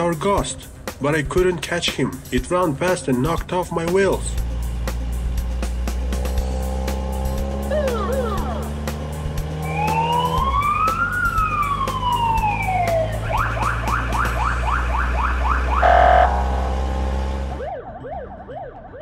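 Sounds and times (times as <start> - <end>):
engine hum: 0.6 - 18.6
police siren wailing and yelping: 9.6 - 16.7, 17.3 - 19.0
quieter fast siren: 9.6 - 16.8, 17.4 - 19.0
siren blast: 9.6 - 19.0.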